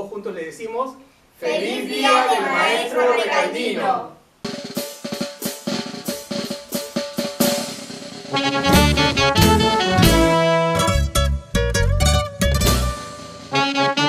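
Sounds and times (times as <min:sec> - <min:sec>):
snare drum strikes: 0:04.4 - 0:10.5
band playing with bass and horns: 0:08.3 - 0:14.0.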